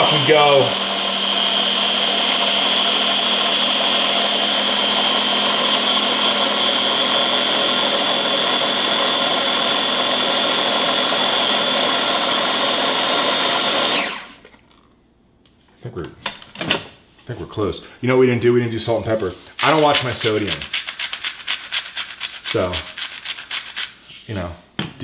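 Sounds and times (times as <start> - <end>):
electric food chopper whining: 0.0 - 14.4.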